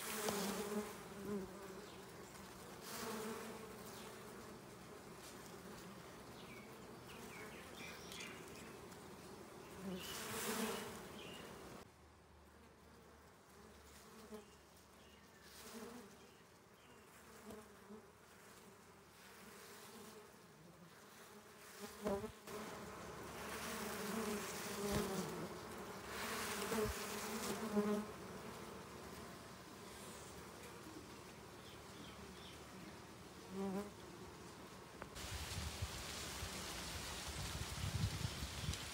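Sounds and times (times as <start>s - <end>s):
bees buzzing: 0.0s - 11.8s, 21.1s - 35.4s.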